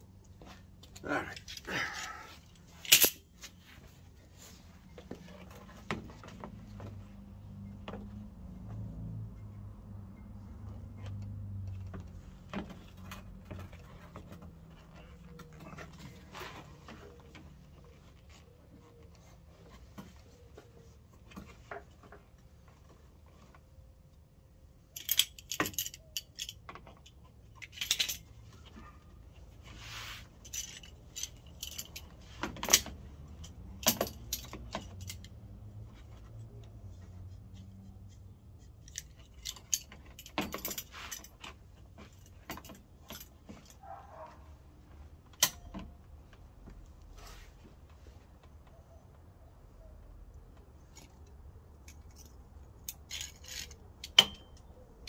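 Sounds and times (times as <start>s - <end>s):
metal tools clinking on plastic: 0.8s - 3.5s, 24.9s - 28.9s, 30.3s - 36.3s, 37.6s - 44.3s, 45.3s - 46.0s, 50.8s - 55.0s.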